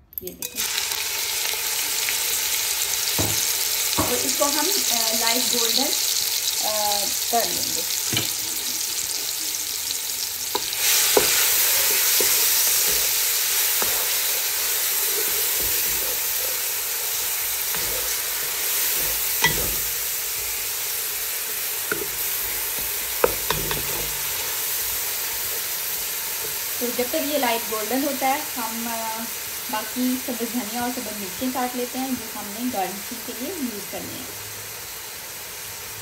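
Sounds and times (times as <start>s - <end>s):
onion sizzling in hot oil: 0.2s - 36.0s
spatula tapping on pan: 21.9s - 22.2s, 22.8s - 24.2s.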